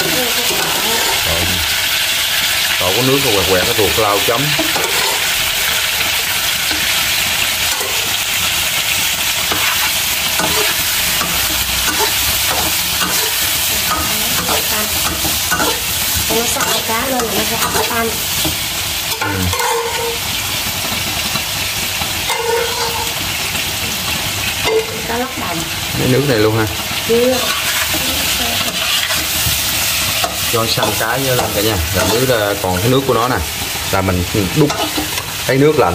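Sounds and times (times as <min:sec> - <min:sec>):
fish sizzling in hot oil: 0:00.0 - 0:35.9
spatula scraping and tapping wok: 0:04.5 - 0:21.5, 0:22.2 - 0:23.6, 0:27.4 - 0:33.1, 0:34.6 - 0:35.4.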